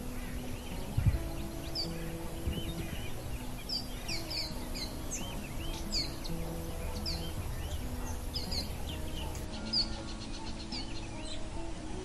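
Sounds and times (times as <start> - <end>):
small birds chirping: 0.0 - 12.0
soft background music: 0.0 - 12.0.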